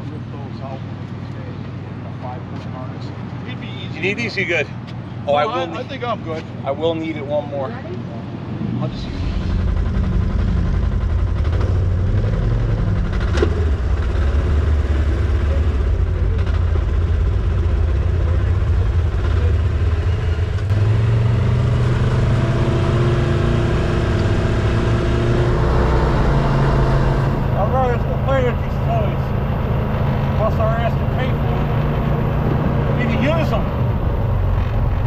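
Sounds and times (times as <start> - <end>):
utility vehicle engine rumble: 0.0 - 35.0.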